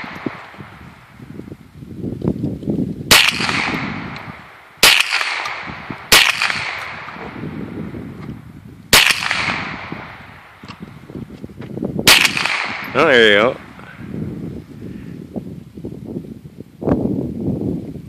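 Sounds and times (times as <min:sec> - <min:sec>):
pistol shots echoing: 0:03.1 - 0:07.4, 0:08.9 - 0:10.3, 0:12.1 - 0:13.4.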